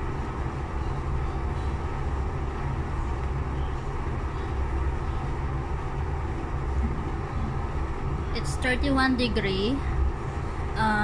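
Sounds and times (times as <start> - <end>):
low machine rumble: 0.0 - 11.0.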